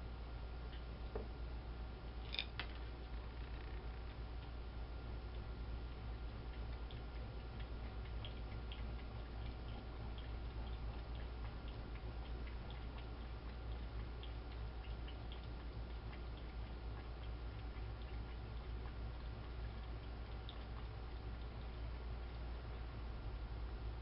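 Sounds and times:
low hum: 0.0 - 24.0
animal lapping water: 2.5 - 24.0.

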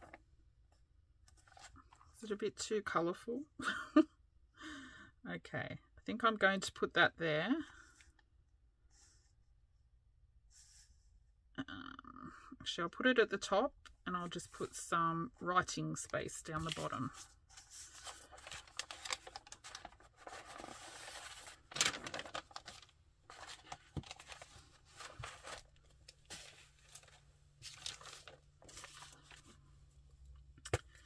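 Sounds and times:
paper pages rustling: 1.3 - 2.1, 16.4 - 29.7.

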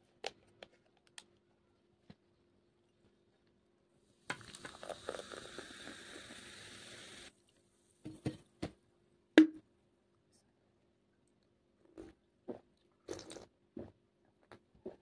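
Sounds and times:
soda pouring and fizzing: 4.2 - 7.4.

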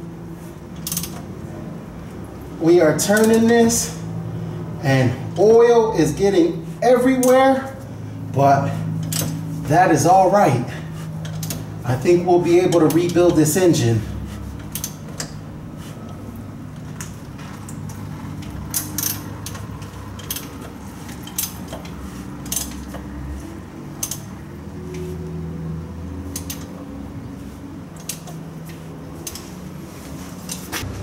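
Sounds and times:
low steady hum: 0.0 - 31.0
wrench clinking on metal: 0.8 - 1.2, 3.0 - 3.9, 7.1 - 7.6, 9.0 - 9.4, 14.6 - 15.4, 17.0 - 23.1, 24.0 - 24.3.

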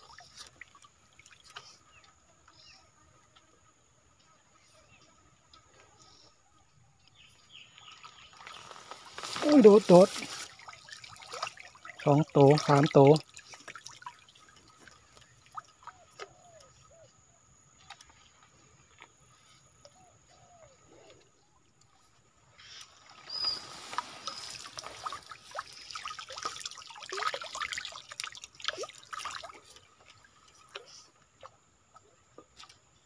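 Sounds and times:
water trickling and dripping: 0.0 - 2.6, 7.0 - 16.8, 22.8 - 33.0
water streaming and splashing: 0.0 - 2.8, 7.1 - 33.0.

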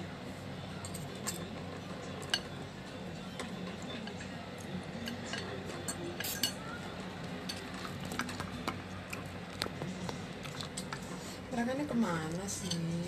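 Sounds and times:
cutlery clinking on ceramic bowl: 5.0 - 6.6, 12.6 - 13.0.

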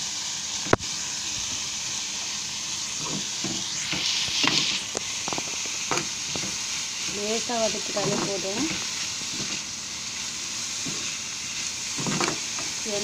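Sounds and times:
onions sizzling in oil: 0.0 - 13.0
spoon scraping a pan: 3.0 - 9.8, 10.8 - 12.8.

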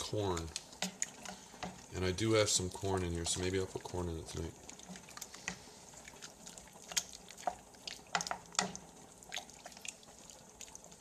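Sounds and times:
liquid popping in a pot: 0.0 - 2.0, 4.6 - 11.0.

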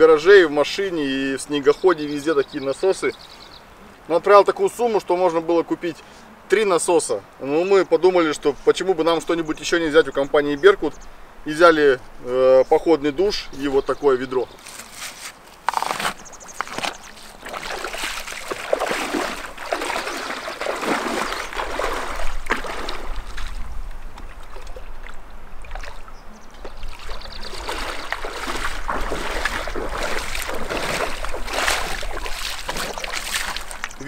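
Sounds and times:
water splashing and sloshing: 14.6 - 34.0.

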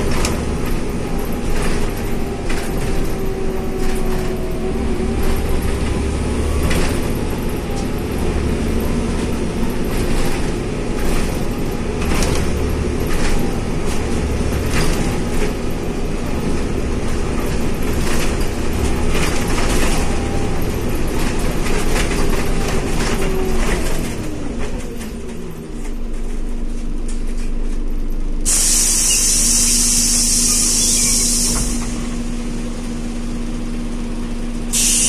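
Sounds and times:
bus drivetrain and road rumble: 0.0 - 35.0
compressed air hiss: 28.5 - 32.1, 34.7 - 35.0.

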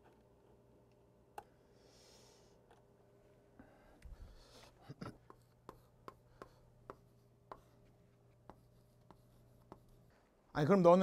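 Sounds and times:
chalk tapping on blackboard: 5.2 - 10.1.

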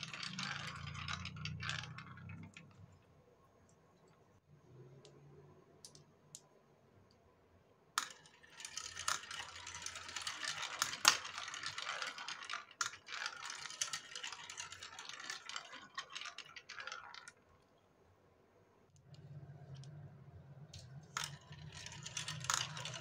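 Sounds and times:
balls rattling down marble run: 0.0 - 3.0, 8.0 - 17.7, 20.8 - 23.0.

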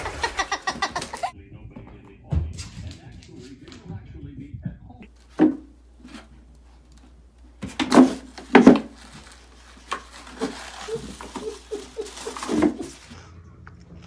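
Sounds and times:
plastic wastebasket knocking and scraping: 5.3 - 6.4, 7.6 - 13.2.

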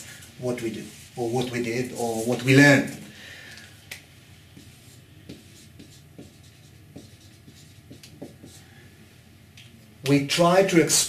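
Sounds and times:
pen scratching on surface: 4.5 - 8.6.

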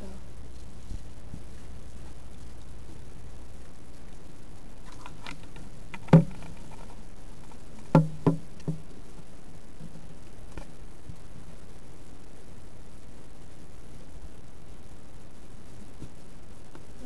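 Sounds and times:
dull knocks: 6.0 - 6.4, 7.9 - 8.8.

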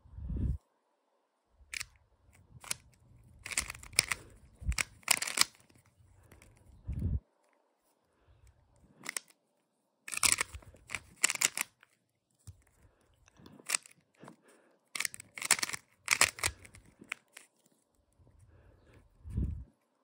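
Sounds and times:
plastic puzzle cube pieces clacking: 2.6 - 6.7, 9.0 - 9.4, 10.1 - 12.8, 13.4 - 14.1, 14.9 - 17.8.

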